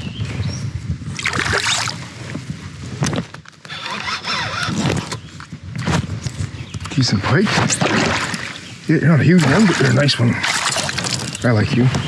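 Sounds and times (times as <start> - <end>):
fish splashing in water: 9.4 - 11.4.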